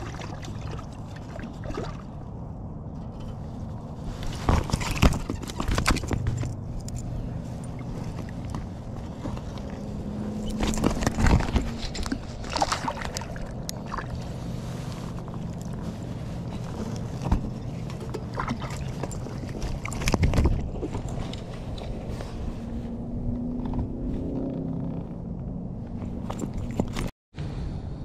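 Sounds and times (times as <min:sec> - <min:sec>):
steady low hum: 0:00.0 - 0:26.8
rustling and knocks of handling: 0:02.9 - 0:22.6
fish flopping and splashing: 0:04.1 - 0:21.9.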